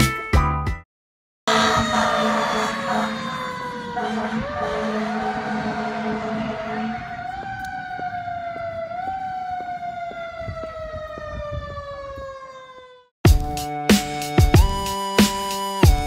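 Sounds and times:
fire engine siren winding down: 1.5 - 13.1.

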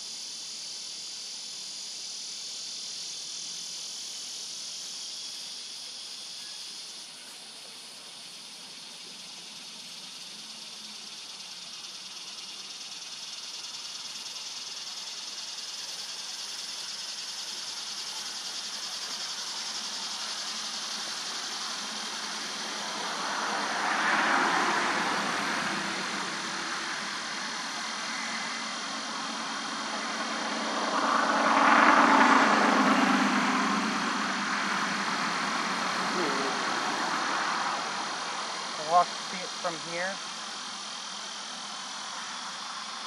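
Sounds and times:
steady outdoor hiss: 0.0 - 43.0
vehicle engine passing: 19.1 - 40.1.

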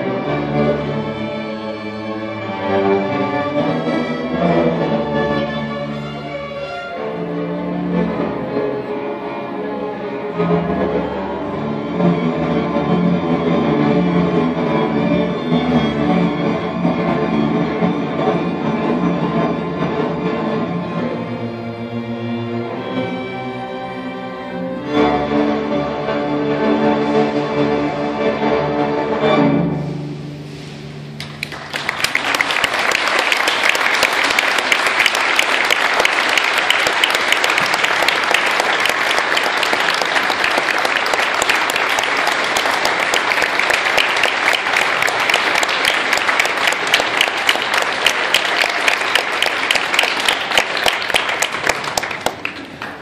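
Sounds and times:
string orchestra holding chord: 0.0 - 53.0
audience applause: 31.2 - 53.0.

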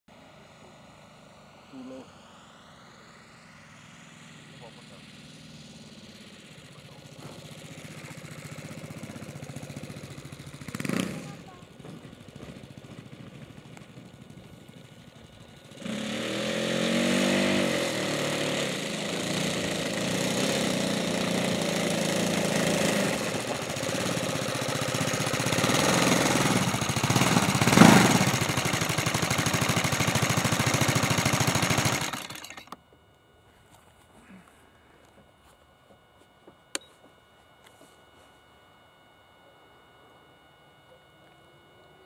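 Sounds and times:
model plane engine running: 0.1 - 32.8.

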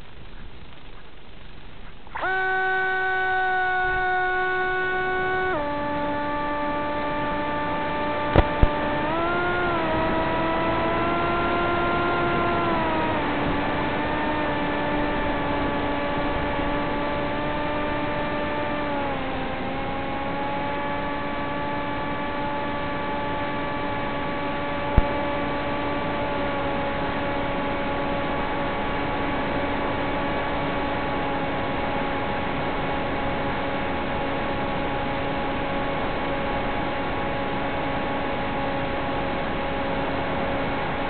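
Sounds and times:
electric motor and propeller whine: 0.0 - 41.0
sharp click: 8.3 - 8.8.

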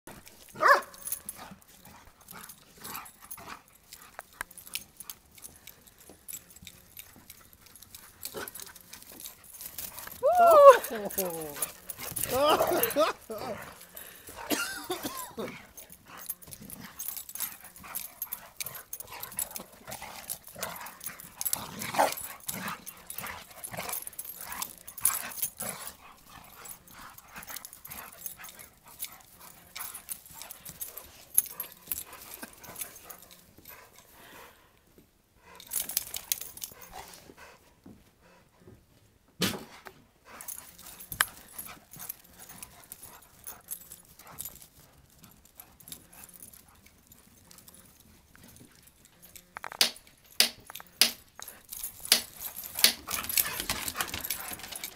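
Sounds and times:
dogs barking and yipping: 0.3 - 5.5, 6.3 - 33.8, 51.6 - 54.9.

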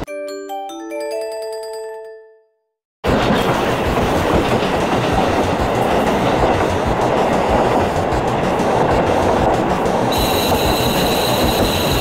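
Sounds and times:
marimba-like chime jingle: 0.0 - 2.6
diesel railcar rumble and clatter: 3.0 - 12.0.

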